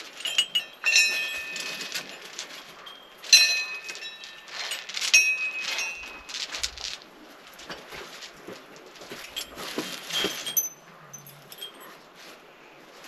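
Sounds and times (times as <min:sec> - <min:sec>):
light bell clinks: 0:00.1 - 0:06.4, 0:09.3 - 0:12.0
brass bells clanging: 0:00.1 - 0:06.6, 0:09.3 - 0:11.9.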